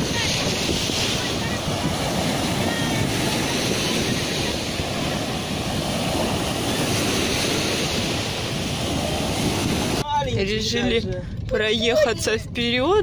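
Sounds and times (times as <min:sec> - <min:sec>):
waves washing up shell beach: 0:00.0 - 0:10.0
wind noise on microphone: 0:00.0 - 0:13.0.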